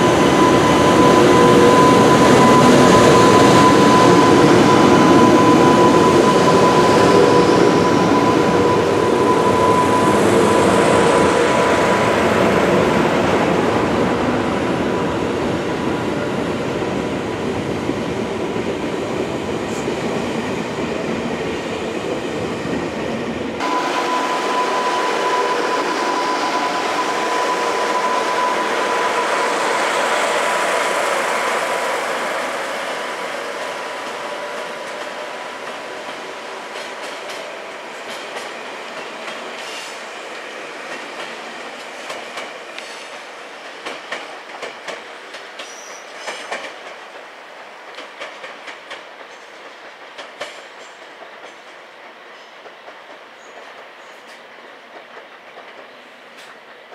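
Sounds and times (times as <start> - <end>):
train wheels rumbling on rail: 0.0 - 56.9
rail-joint clicks: 33.6 - 40.0, 40.9 - 56.9.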